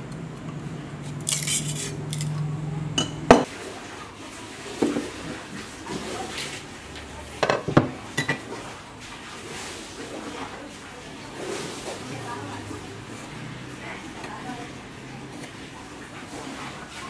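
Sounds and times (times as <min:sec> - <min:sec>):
metal tool scraping and clinking: 0:01.2 - 0:02.4.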